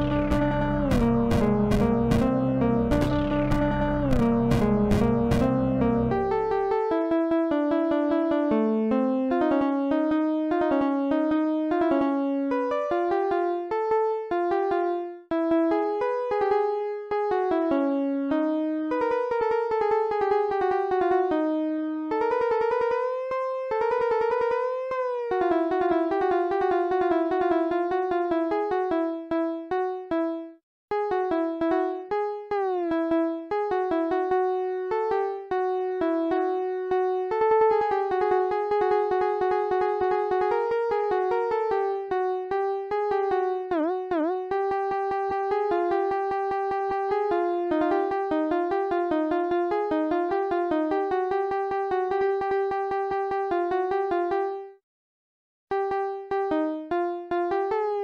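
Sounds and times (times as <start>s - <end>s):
synthesizer melody: 0.0s - 14.9s, 33.8s - 54.5s.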